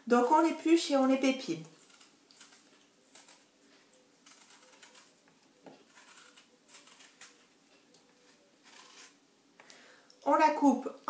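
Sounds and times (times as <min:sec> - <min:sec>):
knife scraping and cutting apple: 0:01.6 - 0:09.2.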